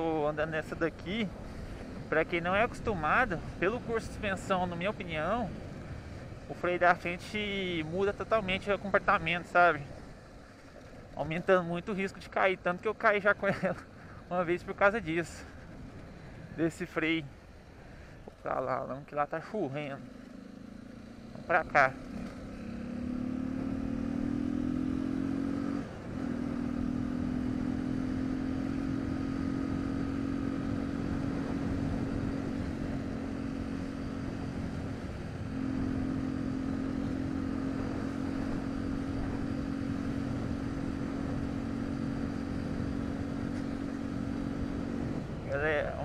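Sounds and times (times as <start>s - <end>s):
motorcycle engine running: 19.6s - 46.0s.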